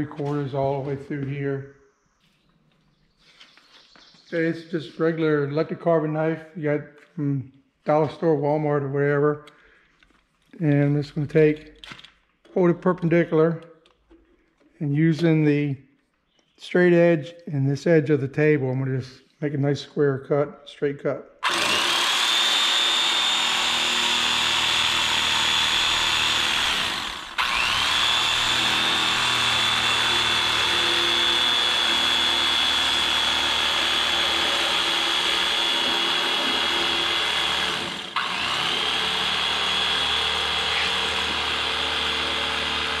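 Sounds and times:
electric carving knife whining: 21.4 - 43.0.

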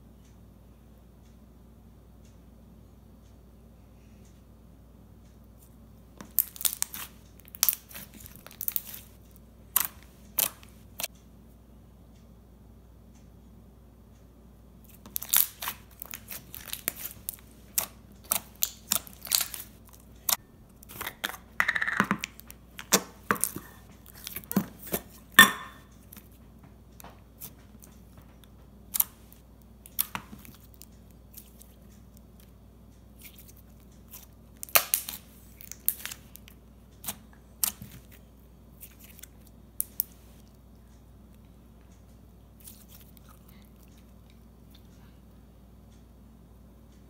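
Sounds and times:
slime clicking and popping: 6.2 - 9.0, 14.9 - 25.0, 29.8 - 31.7, 33.2 - 38.0.

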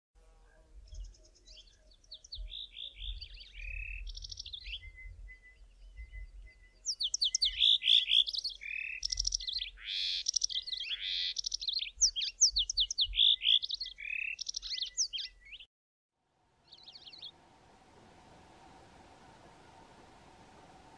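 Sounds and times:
canary singing: 0.8 - 15.7, 16.6 - 17.4.

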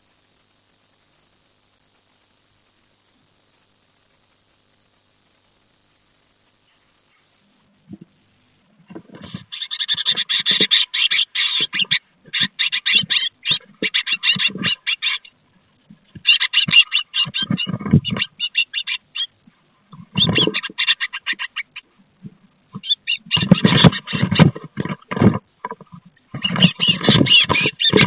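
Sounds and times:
birds rattling calls: 8.8 - 21.9, 22.7 - 28.0.

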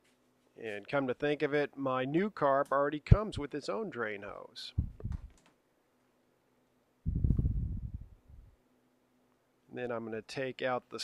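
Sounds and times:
faint low knocks and clicks: 4.8 - 5.6.

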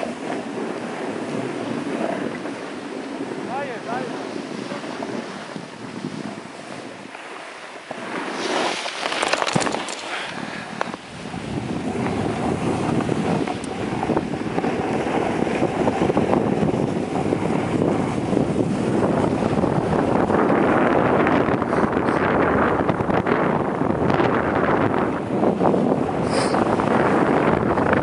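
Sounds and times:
skis scraping: 0.0 - 11.0, 26.2 - 27.3
skis sliding on snow: 0.0 - 11.0, 26.2 - 27.3
wind rushing over microphone: 0.0 - 28.0.

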